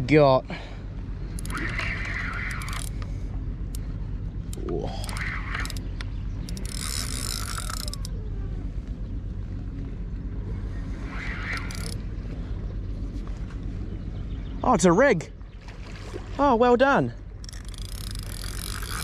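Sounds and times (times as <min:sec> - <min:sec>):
fishing reel gears whirring: 0:01.0 - 0:08.6, 0:10.6 - 0:12.4, 0:17.3 - 0:19.0.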